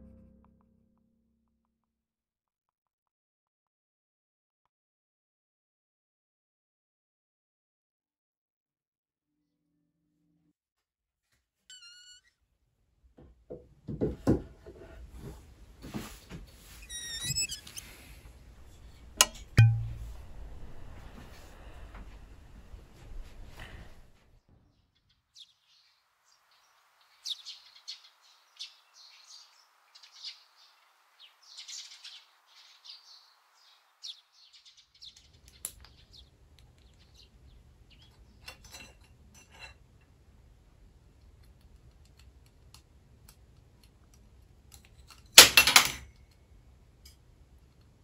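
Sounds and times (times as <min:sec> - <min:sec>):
small birds chirping: 0:16.6 - 0:19.2, 0:24.7 - 0:38.7.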